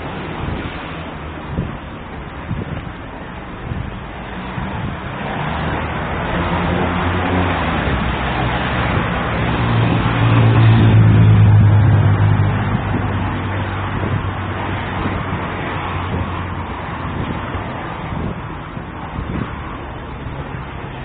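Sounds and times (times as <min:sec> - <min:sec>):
vehicle engine passing: 0:03.6 - 0:18.4.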